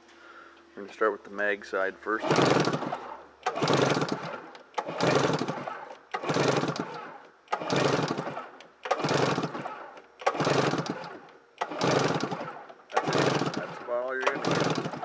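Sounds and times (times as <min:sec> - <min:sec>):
engine being cranked over: 0:02.2 - 0:15.0.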